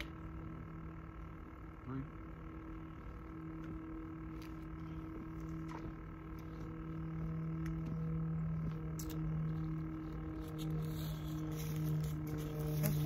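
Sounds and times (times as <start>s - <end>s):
distant motor hum: 0.0s - 13.0s.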